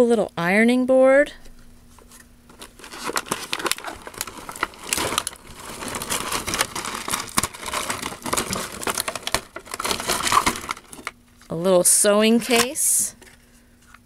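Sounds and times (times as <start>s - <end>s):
plastic bag crinkling: 2.5s - 11.4s.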